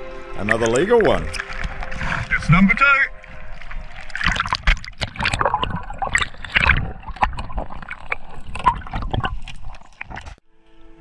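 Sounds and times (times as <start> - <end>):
water sloshing and gurgling: 0.0 - 10.4
underwater clicks and knocks: 3.5 - 10.4.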